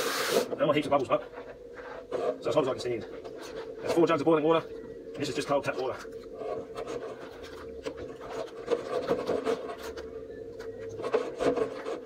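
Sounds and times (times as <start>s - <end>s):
garden hose running water: 0.0s - 0.5s.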